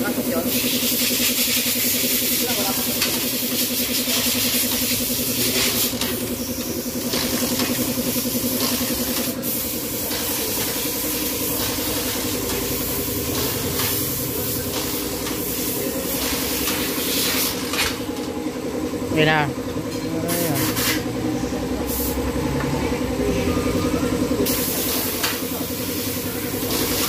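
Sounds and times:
motorcycle engine idling: 0:00.0 - 0:19.9.

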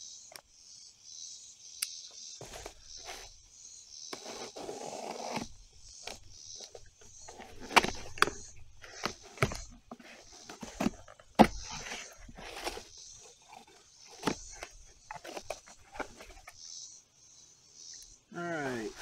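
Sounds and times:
cardboard scraping and rustling: 0:02.4 - 0:03.5, 0:04.1 - 0:16.7, 0:18.5 - 0:19.0.

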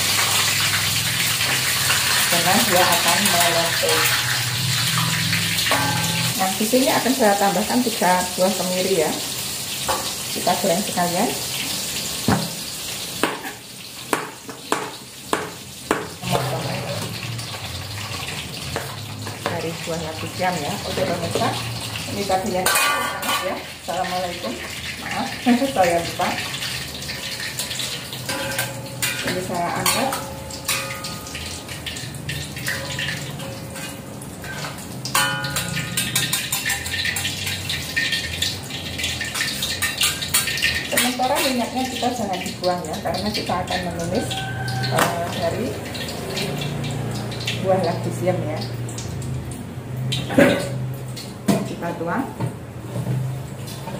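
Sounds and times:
oil sizzling in a wok: 0:00.0 - 0:53.9
metal spatula scraping a pan: 0:01.2 - 0:06.4, 0:22.5 - 0:23.7, 0:26.6 - 0:41.7.

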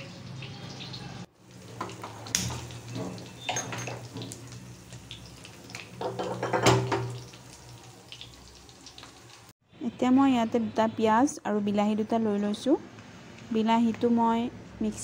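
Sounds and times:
metal pot clattering on stove: 0:01.7 - 0:04.4, 0:06.0 - 0:07.3.

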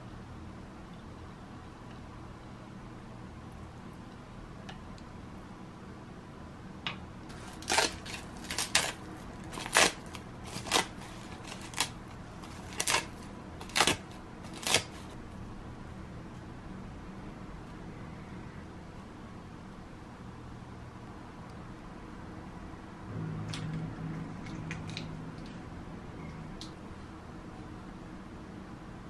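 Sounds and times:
steady low hum: 0:00.0 - 0:29.0
seaweed sheet tearing: 0:07.3 - 0:15.2.

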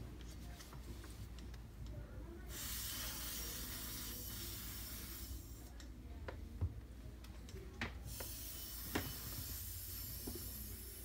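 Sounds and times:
compressed air duster hissing: 0:02.5 - 0:05.6, 0:08.1 - 0:11.0.

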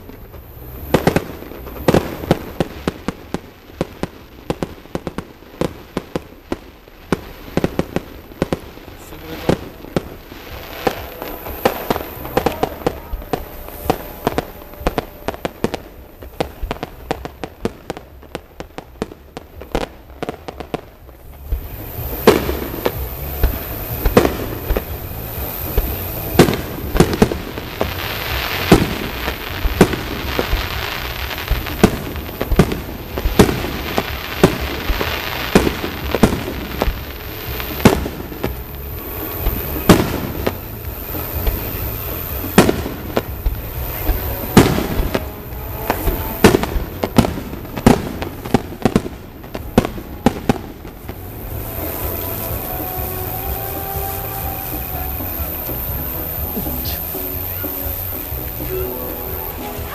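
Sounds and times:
firework hiss: 0:00.0 - 0:59.9
firework shells bursting: 0:00.0 - 0:59.9.

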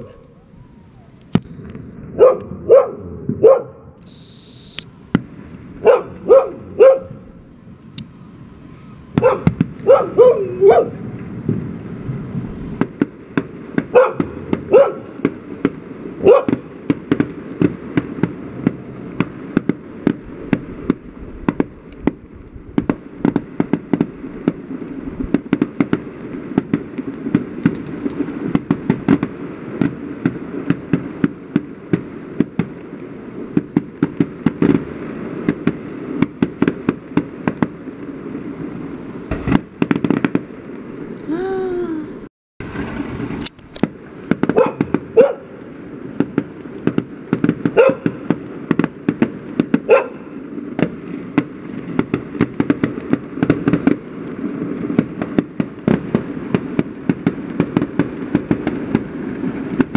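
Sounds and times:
fireworks bangs: 0:00.0 - 0:59.9
dog barking: 0:02.2 - 0:03.8, 0:05.8 - 0:07.2, 0:09.2 - 0:11.0, 0:13.9 - 0:15.1, 0:16.2 - 0:16.6, 0:44.5 - 0:45.5, 0:47.8 - 0:48.2, 0:49.9 - 0:50.3.

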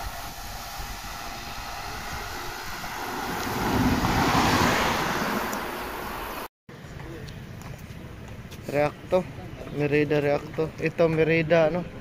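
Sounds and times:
wind rushing over microphone: 0:00.0 - 0:06.5
road noise: 0:00.0 - 0:12.0.

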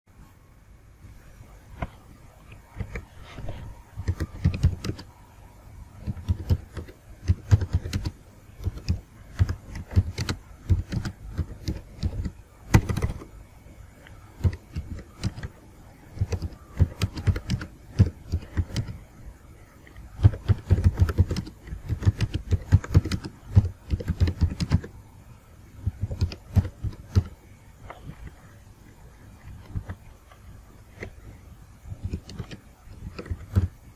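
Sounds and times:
typing on computer keyboard: 0:04.0 - 0:05.1, 0:06.0 - 0:13.3, 0:14.1 - 0:19.0, 0:20.0 - 0:24.9, 0:25.8 - 0:27.4, 0:31.9 - 0:33.8.

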